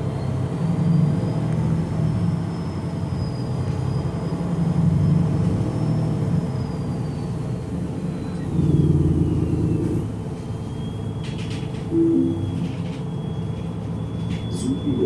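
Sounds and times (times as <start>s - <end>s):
bus diesel engine rumble: 0.0s - 15.0s
radiator fan whine: 10.0s - 15.0s.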